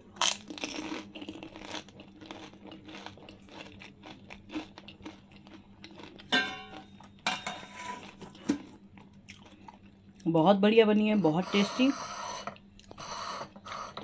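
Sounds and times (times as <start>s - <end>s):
crisp shell crunching while chewing: 0.1s - 7.0s.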